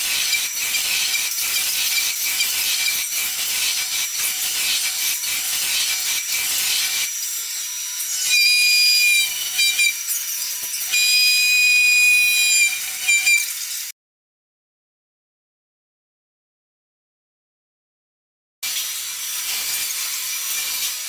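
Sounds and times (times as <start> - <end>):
router cutting foam hiss: 0.0 - 13.9, 18.6 - 21.0.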